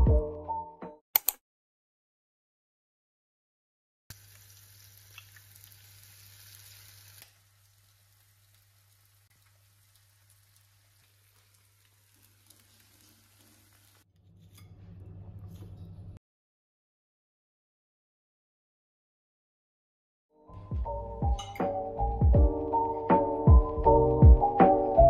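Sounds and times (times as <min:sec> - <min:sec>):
food sizzling in a frying pan: 0:04.1 - 0:14.1.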